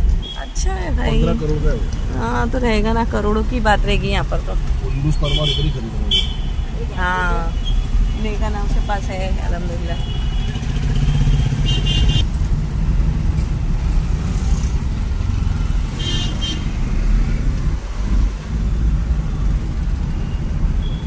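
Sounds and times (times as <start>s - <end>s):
car engine and road rumble: 0.0s - 21.0s
vehicle horn honk: 5.2s - 6.7s, 10.0s - 12.2s, 16.0s - 16.6s.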